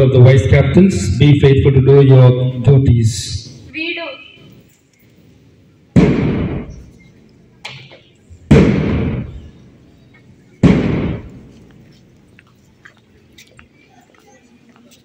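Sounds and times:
loud bangs: 5.9s - 7.0s, 7.7s - 9.8s, 10.6s - 11.7s.

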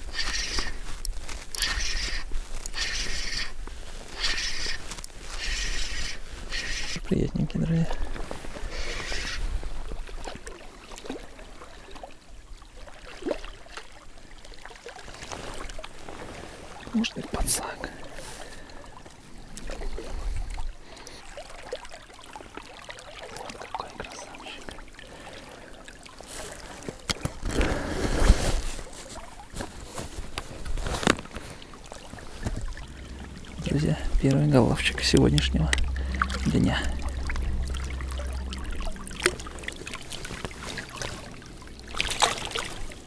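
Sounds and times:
fish splashing in water: 0.0s - 7.1s, 8.0s - 17.3s, 28.8s - 43.0s.

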